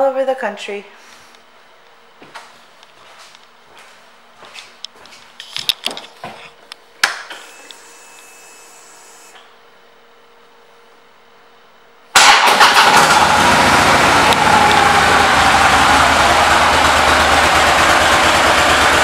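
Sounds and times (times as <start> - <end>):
faint high electrical whine: 0.0 - 12.2
motorcycle engine idling: 13.2 - 19.0.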